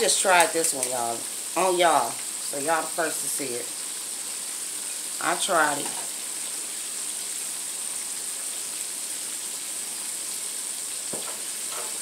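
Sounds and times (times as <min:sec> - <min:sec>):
hot oil sizzling and bubbling: 0:00.0 - 0:12.0.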